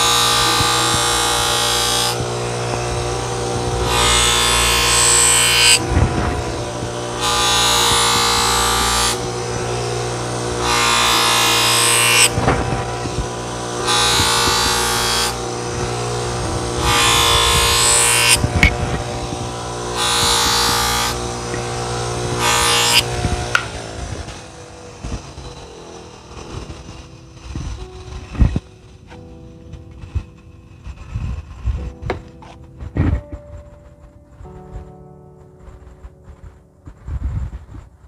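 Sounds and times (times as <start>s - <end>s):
knife blade hissing on grinder wheel: 0.0s - 29.4s
bench grinder motor humming: 0.0s - 32.8s.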